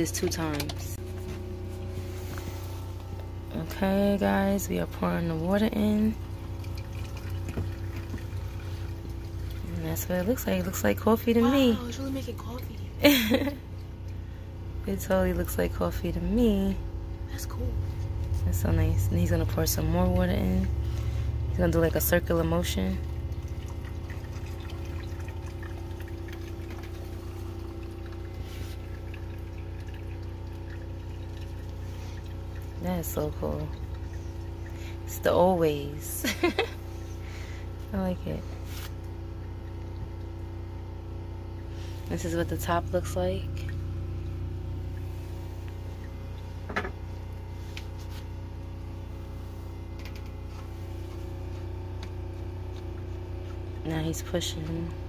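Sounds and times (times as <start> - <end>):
coffee trickling into carafe: 0.0 - 14.6, 21.9 - 37.8
steady low hum: 0.0 - 55.0.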